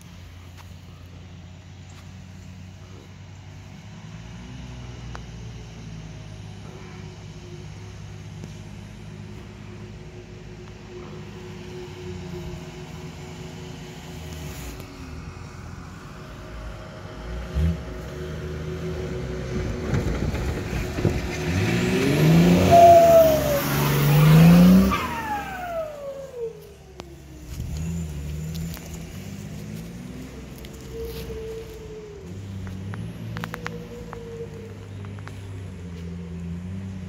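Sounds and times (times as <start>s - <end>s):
truck engine revving: 1.5s - 37.0s.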